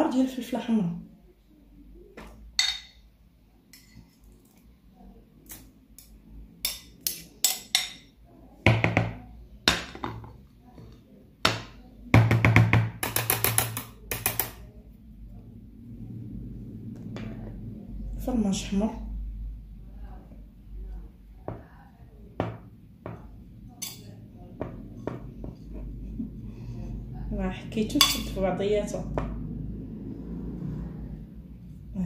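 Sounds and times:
metal spoon clinking and scraping: 3.7 - 4.6, 5.5 - 8.2, 23.7 - 24.2.

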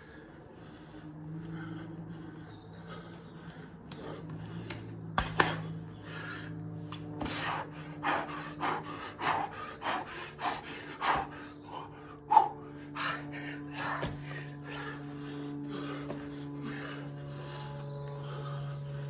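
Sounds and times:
man panting hard: 0.0 - 19.0
steady low hum: 0.0 - 19.0.

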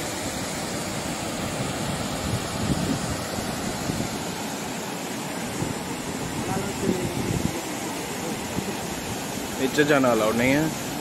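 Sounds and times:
wind rumbling on microphone: 0.0 - 4.4, 5.4 - 9.6
waterfall roaring: 0.0 - 11.0.

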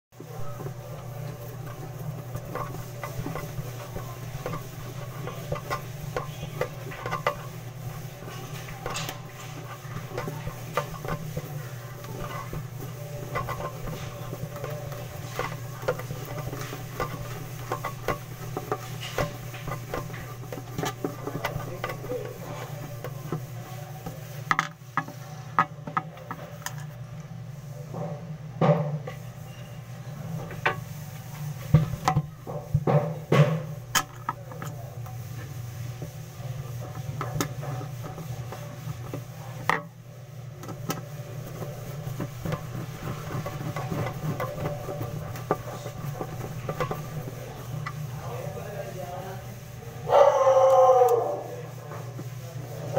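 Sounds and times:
wooden boards being handled: 0.2 - 26.9, 40.6 - 48.4
steady low hum: 0.2 - 52.9.

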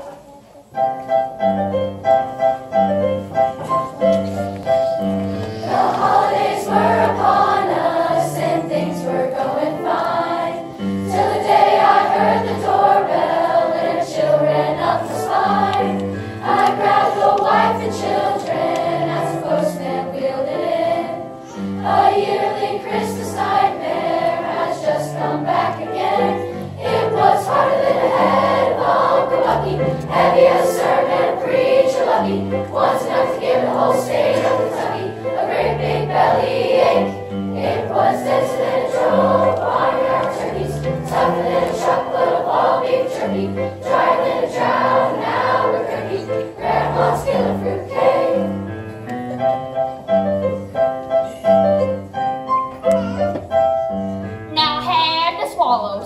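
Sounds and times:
piano accompaniment: 0.0 - 56.0
youth choir singing: 5.1 - 48.9.

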